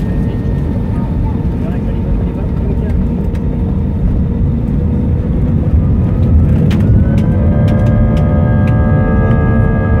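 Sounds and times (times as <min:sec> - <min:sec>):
jet engine cabin rumble: 0:00.0 - 0:10.0
rising multi-tone engine whine: 0:03.2 - 0:10.0.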